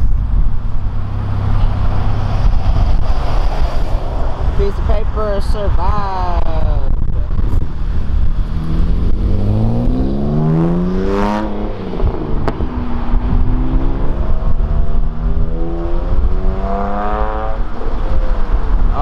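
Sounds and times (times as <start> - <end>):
car engine accelerating: 6.9 - 19.0
exhaust pop: 11.2 - 13.8.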